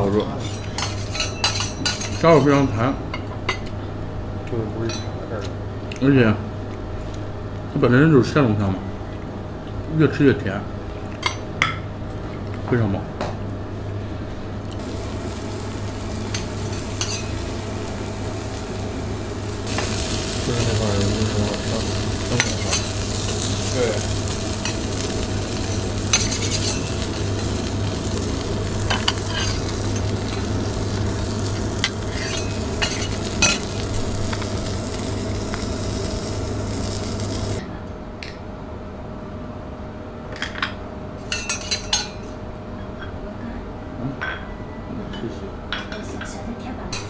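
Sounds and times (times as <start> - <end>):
plates and cutlery clinking: 0.3 - 3.7, 16.2 - 17.5, 19.7 - 28.1, 28.8 - 30.5, 31.8 - 34.5, 40.4 - 43.2
low hum: 14.1 - 37.7
food sizzling on a griddle: 14.8 - 37.6
metal spatula scraping steel: 31.8 - 33.7.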